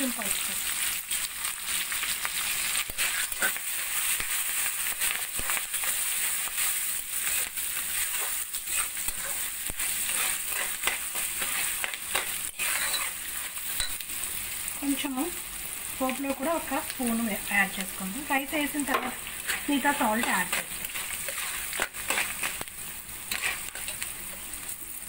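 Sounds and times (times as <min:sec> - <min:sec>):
oil sizzling in a pan: 0:00.0 - 0:25.0
spatula scraping a pan: 0:02.3 - 0:14.0, 0:18.8 - 0:24.5.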